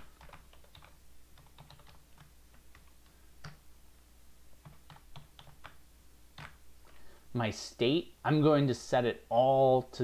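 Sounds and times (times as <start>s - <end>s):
computer keyboard typing: 0.0s - 3.6s, 4.6s - 5.8s, 6.4s - 6.6s.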